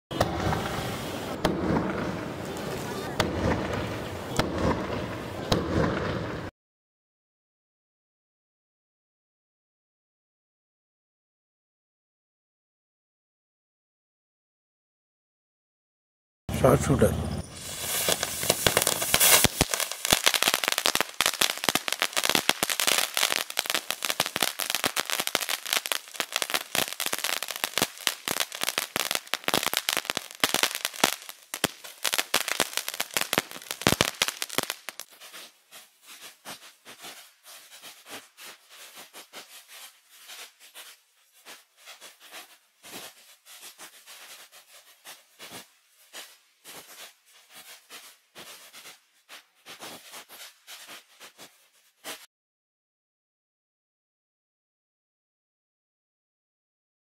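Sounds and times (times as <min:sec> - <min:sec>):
ground firework crackling: 0:00.1 - 0:06.5, 0:16.6 - 0:52.3.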